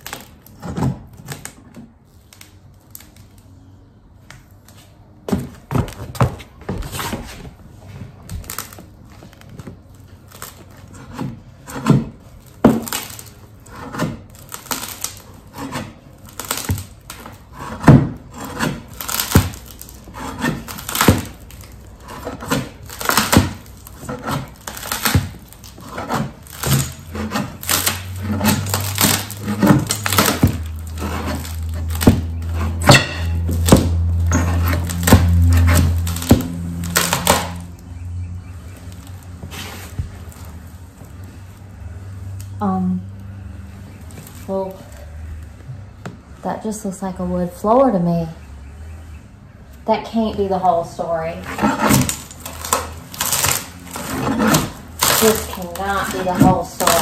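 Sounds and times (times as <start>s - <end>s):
wood knocking and cracking: 4.3s - 7.2s, 8.0s - 37.9s, 51.6s - 57.0s.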